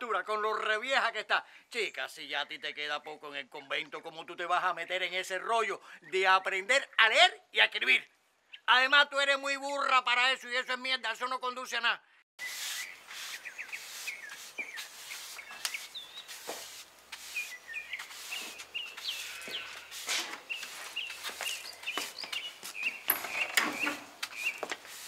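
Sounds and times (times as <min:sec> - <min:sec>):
small birds chirping: 0:08.1 - 0:08.7, 0:12.4 - 0:25.0
broom sweeping a floor: 0:12.4 - 0:23.0, 0:23.7 - 0:25.0.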